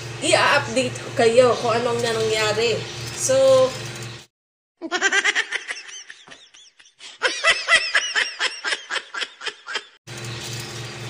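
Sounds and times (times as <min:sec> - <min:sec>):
high-pitched laughing effect: 0:04.8 - 0:10.0.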